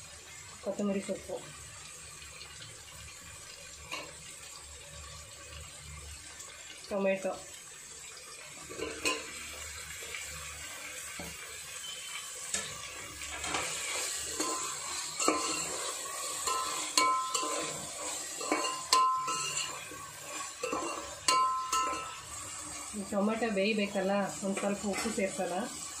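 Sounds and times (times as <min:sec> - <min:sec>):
frying sizzle: 0:00.0 - 0:26.0
metal spoon scraping a pot: 0:12.5 - 0:22.9.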